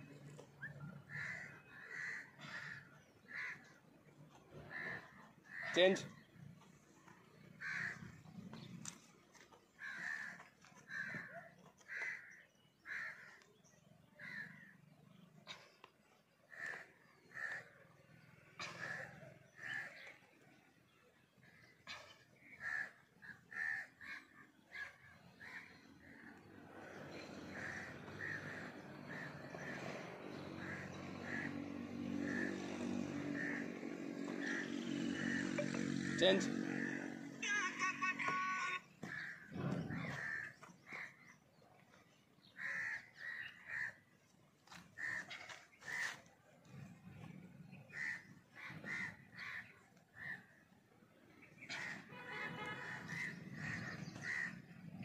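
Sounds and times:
crow cawing: 1.0s - 3.8s, 4.5s - 5.8s, 7.5s - 8.3s, 9.8s - 13.5s, 14.2s - 14.7s, 16.5s - 20.2s, 21.5s - 37.4s, 39.0s - 41.4s, 42.5s - 44.0s, 44.7s - 46.2s, 47.9s - 50.6s, 51.7s - 52.1s, 52.8s - 54.6s
motor vehicle engine hum: 26.1s - 40.9s.

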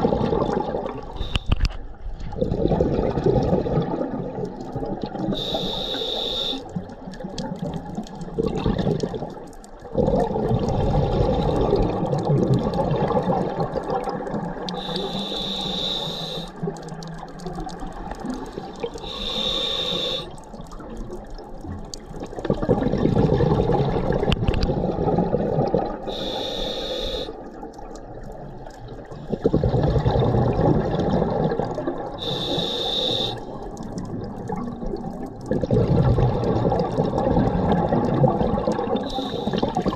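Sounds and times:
burble of exhaled bubbles: 0.0s - 5.6s, 6.7s - 15.1s, 16.5s - 19.5s, 20.2s - 26.4s, 27.4s - 39.9s
hissing regulator inhale: 1.2s - 1.7s, 5.4s - 6.7s, 14.8s - 16.6s, 19.0s - 20.4s, 26.1s - 27.4s, 32.2s - 33.5s, 39.0s - 39.8s.

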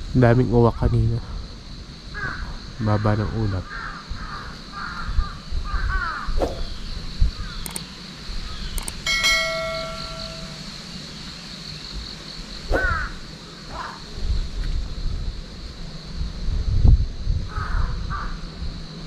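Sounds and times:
crows cawing: 2.1s - 6.4s, 7.4s - 7.6s, 12.8s - 14.0s, 17.5s - 18.4s
metallic ding: 9.1s - 10.8s.

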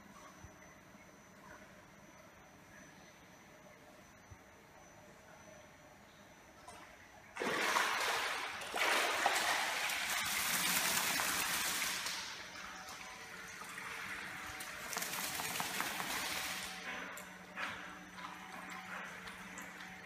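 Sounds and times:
dog shaking wet coat: 7.4s - 12.3s, 14.6s - 16.8s
water streaming and splashing: 7.4s - 16.8s.

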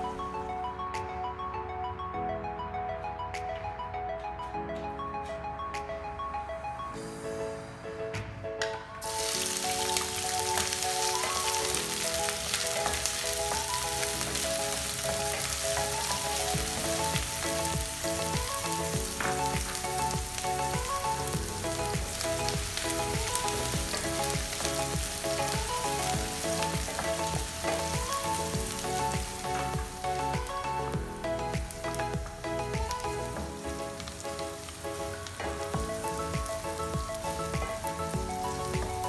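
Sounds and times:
background music: 0.0s - 39.0s
onions sizzling in oil: 9.0s - 30.3s, 31.6s - 39.0s.

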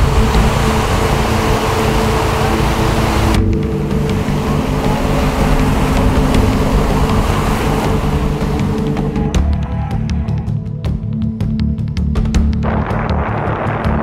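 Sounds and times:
wind buffeting microphone: 0.0s - 10.4s.

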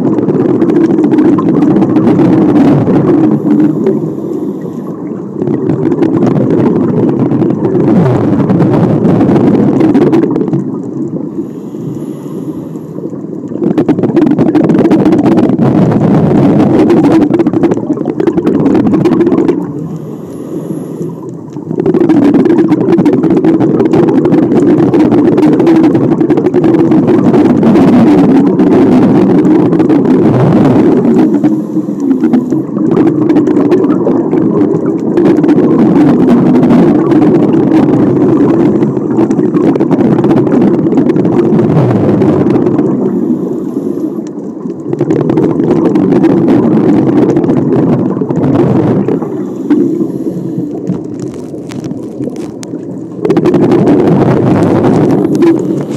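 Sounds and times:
rumbling of exhaled bubbles: 0.0s - 55.9s
regulator inhale hiss: 3.3s - 5.1s, 11.3s - 13.1s, 19.8s - 21.3s, 31.2s - 32.7s, 43.1s - 44.3s, 49.3s - 50.9s.

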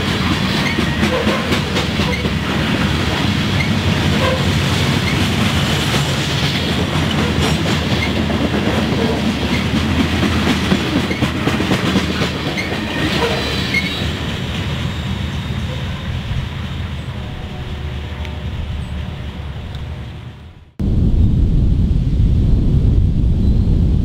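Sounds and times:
freight train wheels clattering: 0.0s - 14.9s.

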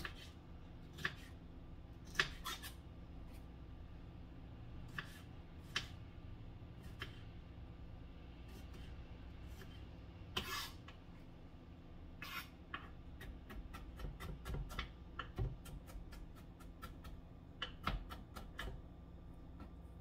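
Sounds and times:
knife scraping cutting board: 0.0s - 1.4s, 2.0s - 3.4s, 4.9s - 5.9s, 8.5s - 11.0s, 12.2s - 12.8s.

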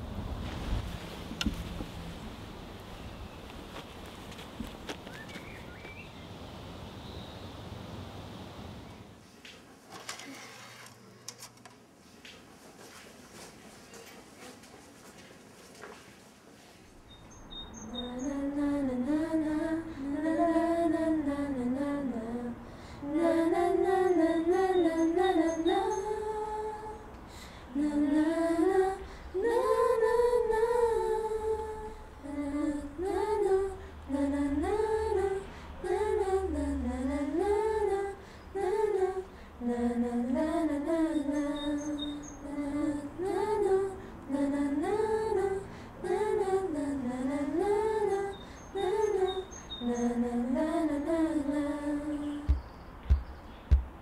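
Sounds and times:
woman singing unaccompanied: 17.7s - 52.8s.

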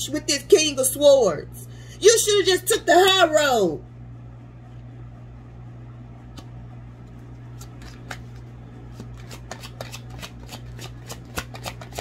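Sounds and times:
low steady hum: 0.0s - 12.0s
cards flicking: 7.5s - 12.0s.

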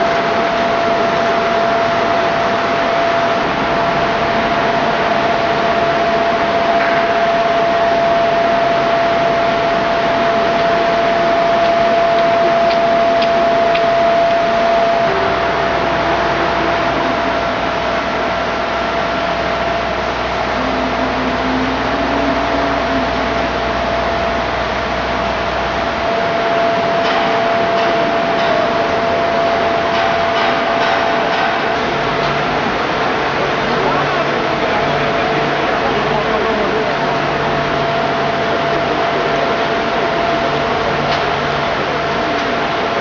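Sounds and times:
ventilation fan rushing with whine: 0.0s - 43.0s
deep rumble: 3.1s - 30.4s.

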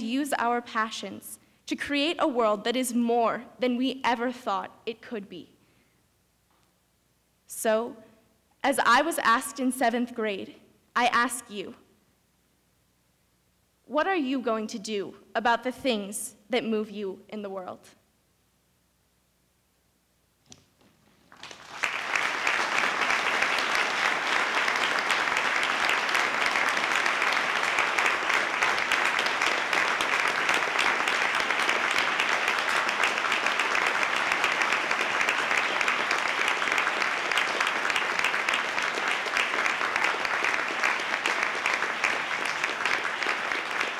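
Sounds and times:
audience applause: 21.3s - 43.9s.

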